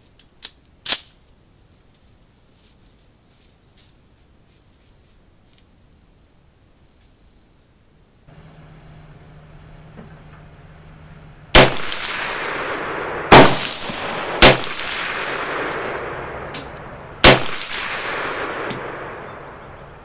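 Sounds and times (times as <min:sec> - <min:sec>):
rifle shots with echo: 0:11.5 - 0:19.8.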